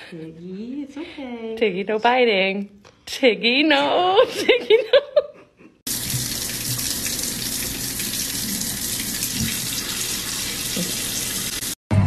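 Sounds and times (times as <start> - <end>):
faucet running into metal sink: 5.9 - 11.8.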